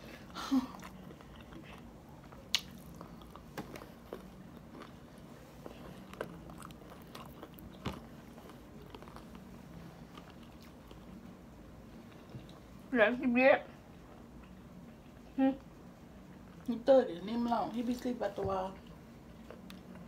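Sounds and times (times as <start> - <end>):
quiet chewing: 0.2 - 11.3, 13.9 - 16.7, 18.7 - 20.0.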